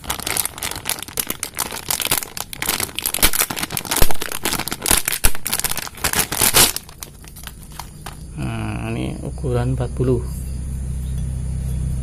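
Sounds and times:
plastic wrapping crinkling: 0:00.0 - 0:08.2.

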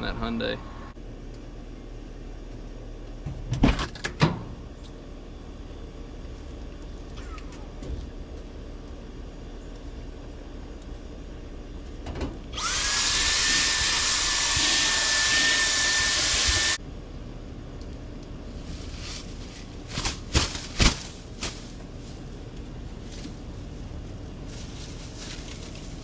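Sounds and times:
motorised tool whining: 0:12.6 - 0:16.8.

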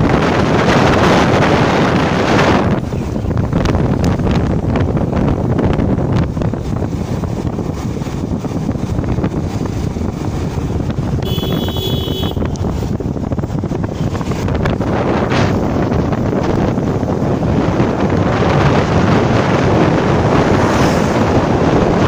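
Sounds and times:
motorcycle engine and road rumble: 0:00.0 - 0:22.0
wind buffeting microphone: 0:00.0 - 0:22.0
high steady tone: 0:11.2 - 0:12.6.

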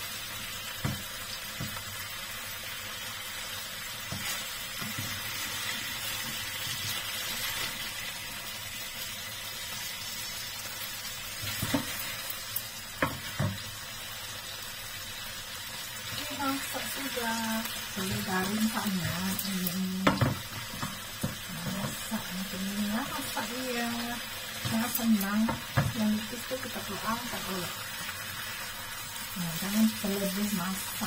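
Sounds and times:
fish sizzling in a frying pan: 0:00.0 - 0:31.0
spatula knocking and scraping pan: 0:04.0 - 0:05.5, 0:11.4 - 0:12.1, 0:13.0 - 0:13.6, 0:20.0 - 0:22.1, 0:24.6 - 0:26.1.

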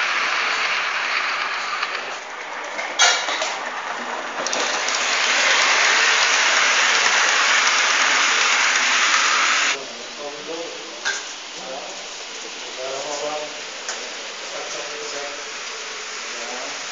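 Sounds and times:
model train wheels rattling: 0:00.0 - 0:02.1, 0:04.4 - 0:09.8.

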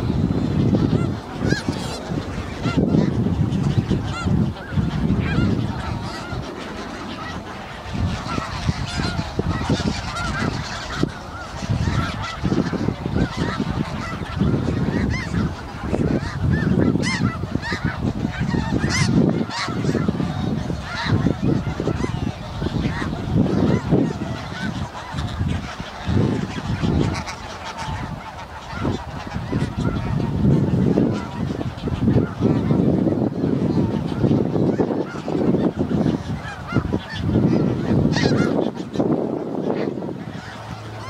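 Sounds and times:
gusty low rumble: 0:00.0 - 0:28.1
geese honking: 0:00.0 - 0:41.0.

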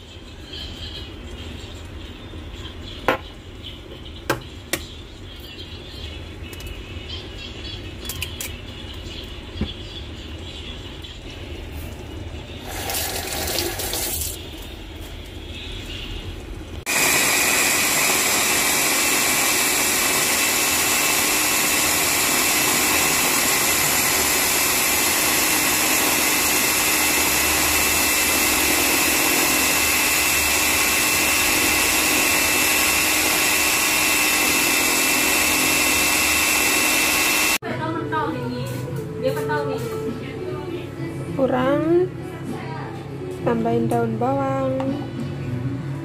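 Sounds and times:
food chopper motor whining: 0:16.9 - 0:37.6.

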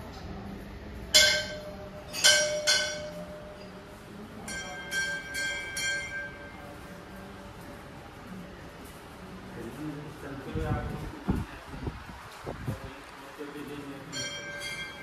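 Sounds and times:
brass bells ringing: 0:01.2 - 0:03.8, 0:04.4 - 0:06.8, 0:14.0 - 0:15.0.

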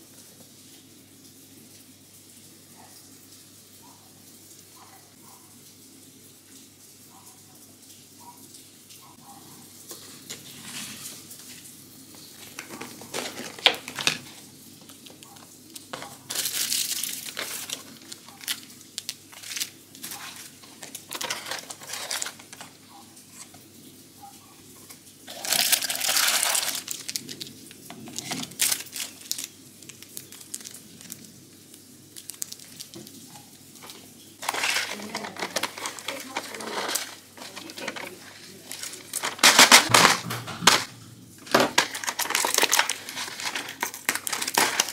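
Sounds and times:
plastic wrap crinkling: 0:09.9 - 0:23.6, 0:24.7 - 0:44.9.

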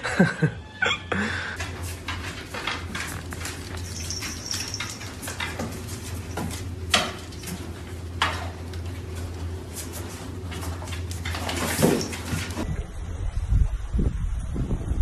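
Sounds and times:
steady low hum: 0:01.1 - 0:15.0
light clicking and clattering: 0:01.6 - 0:12.6.

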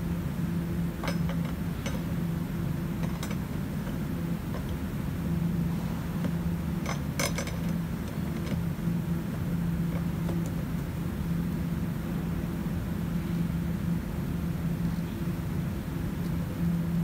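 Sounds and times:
steady low hum: 0:00.0 - 0:17.0
lock ring creaking and clicking: 0:06.2 - 0:08.7.

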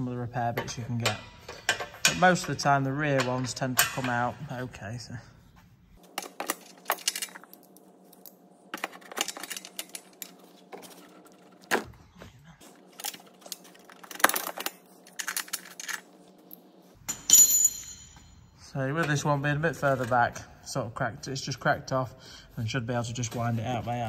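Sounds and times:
metallic clink with ring: 0:17.1 - 0:18.4.

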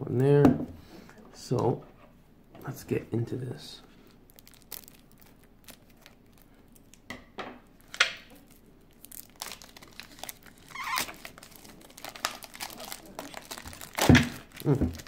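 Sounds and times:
plastic wrap crinkling: 0:04.0 - 0:07.1, 0:07.8 - 0:15.0
scissors cutting shrink wrap: 0:09.2 - 0:15.0.

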